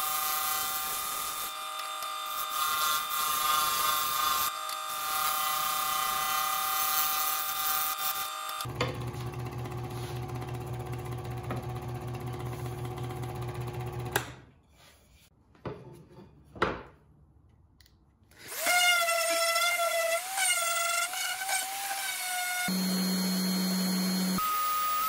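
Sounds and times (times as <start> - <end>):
scroll saw cutting wood: 0.0 - 8.7, 18.4 - 25.0
orbit sander whining: 21.1 - 25.0.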